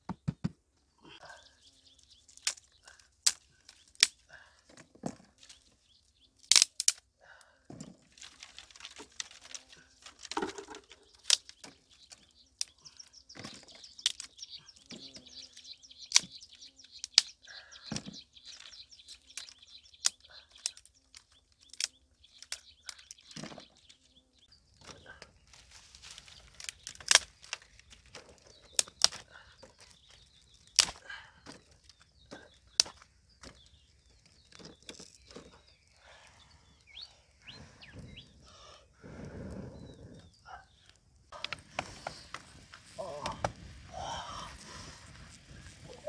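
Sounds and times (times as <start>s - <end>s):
dry sticks snapping: 2.0s - 5.8s, 6.4s - 7.1s, 8.0s - 24.0s, 24.8s - 35.5s
dry brush rustling and scraping: 25.4s - 29.0s.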